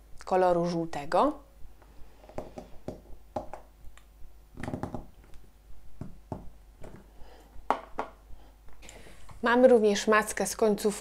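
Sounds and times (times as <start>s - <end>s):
tool tapping modelling dough: 2.3s - 3.7s, 4.6s - 5.1s, 6.0s - 7.1s.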